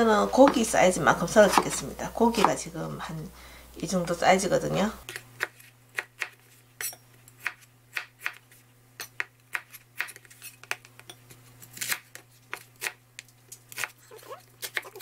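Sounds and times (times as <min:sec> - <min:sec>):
knife chopping on cutting board: 0:01.4 - 0:02.6, 0:05.1 - 0:08.4.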